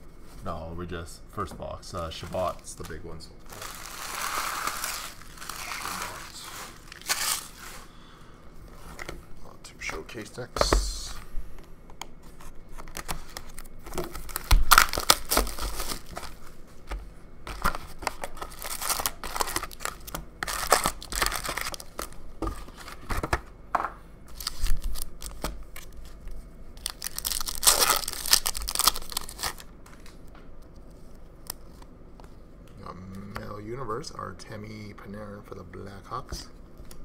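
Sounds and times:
plastic wrapping ripping and crinkling: 2.8 - 7.9, 12.7 - 16.5, 17.5 - 23.1, 24.3 - 26.2, 26.8 - 30.1.

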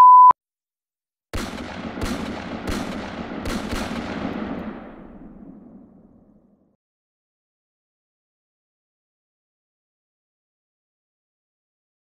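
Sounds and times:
gunshots: 1.4 - 6.6.

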